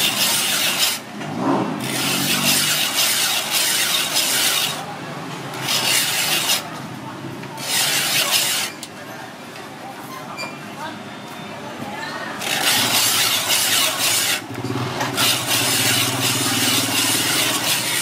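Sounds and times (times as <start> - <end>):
blade rasping on ice: 1.9 - 4.8, 5.6 - 6.6, 12.4 - 14.4, 15.0 - 18.0.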